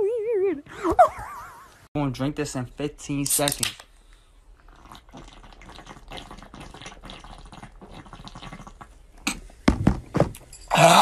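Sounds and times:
liquid gurgling in a can: 4.5 - 9.0
person gulping a drink: 4.5 - 9.5.

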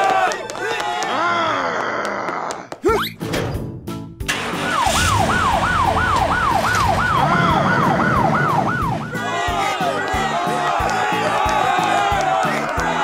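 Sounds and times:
cartoon police siren wailing: 4.4 - 9.6.

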